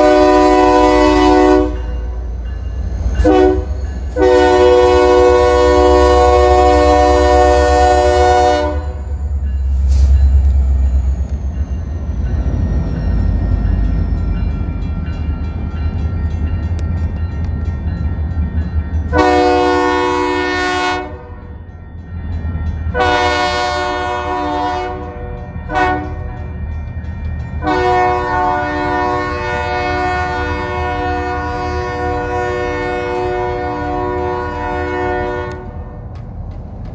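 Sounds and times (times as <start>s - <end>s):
locomotive horn blasts: 0.0s - 2.2s, 3.2s - 9.1s, 19.1s - 21.4s, 23.0s - 26.3s, 27.6s - 35.8s.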